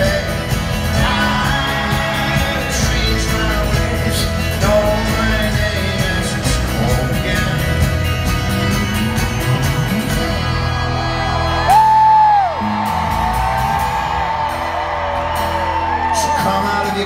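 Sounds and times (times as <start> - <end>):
folk-rock band playing: 0.0 - 17.0
audience member whooping: 9.0 - 16.6.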